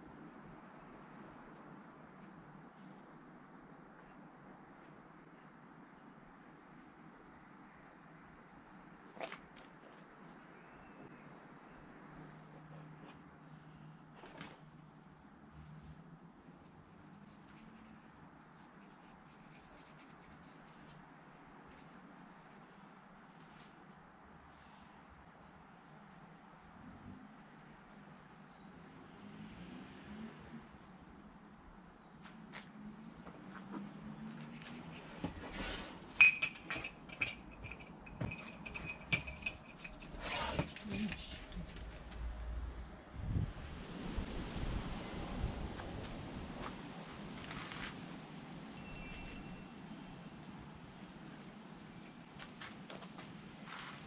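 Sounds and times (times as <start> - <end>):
rustle: 12.7 - 25.6, 33.5 - 42.8, 43.6 - 54.0
paintbrush scratching on canvas: 16.5 - 22.8
light glassy clinks: 36.2 - 41.2.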